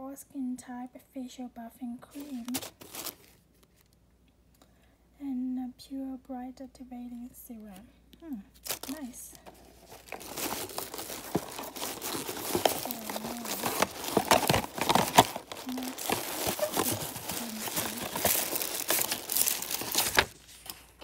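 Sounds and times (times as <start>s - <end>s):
tissue paper crinkling: 2.1s - 3.9s, 8.6s - 21.0s.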